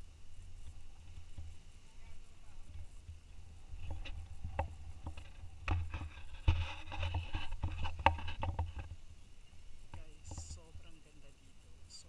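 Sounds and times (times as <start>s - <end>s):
wind buffeting microphone: 0.0s - 11.1s
camera handling rustles and knocks: 3.8s - 9.0s.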